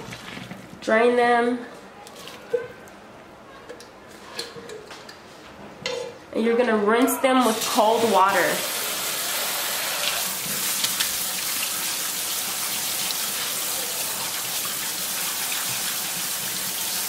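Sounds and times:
faucet water splashing into sink: 7.5s - 17.0s.

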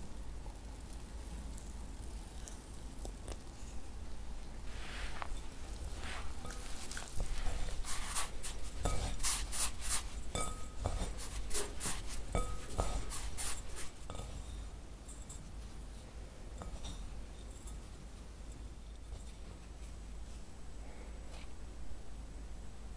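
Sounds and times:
hands rubbing rice flour: 4.6s - 14.4s.

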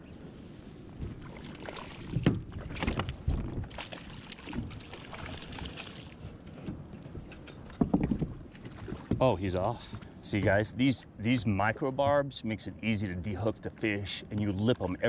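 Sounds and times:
fish splashing at surface: 3.7s - 6.2s.

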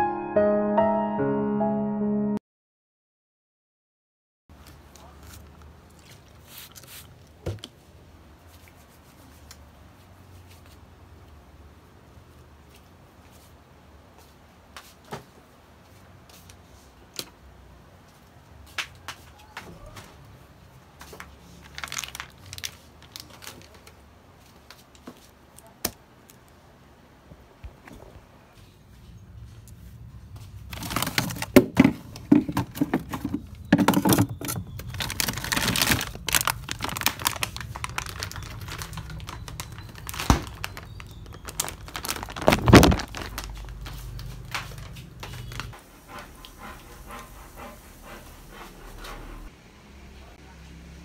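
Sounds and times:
rustling and crinkling: 4.5s - 10.9s, 20.9s - 25.6s, 27.6s - 45.8s.

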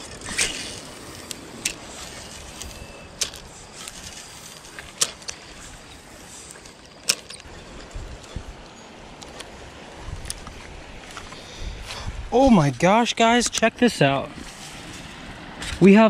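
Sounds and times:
flowing stream: 0.0s - 16.0s
wind noise: 7.3s - 13.7s.

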